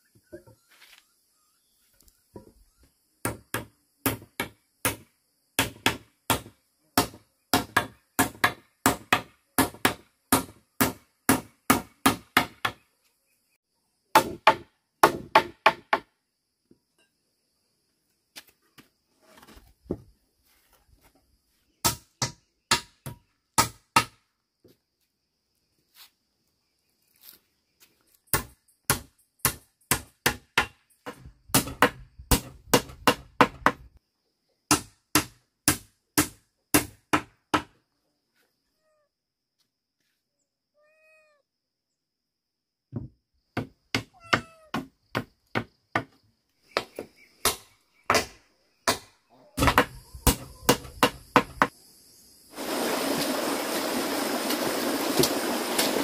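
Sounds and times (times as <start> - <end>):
hand tool striking bamboo: 46.8 - 51.7.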